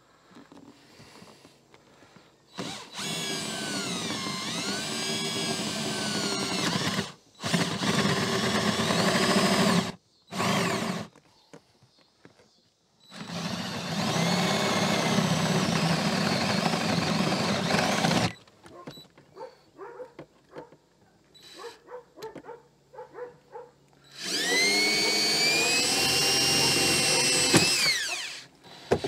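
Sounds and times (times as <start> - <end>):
power drill boring a hole: 2.5 - 11.1, 13.1 - 18.4, 24.0 - 29.0.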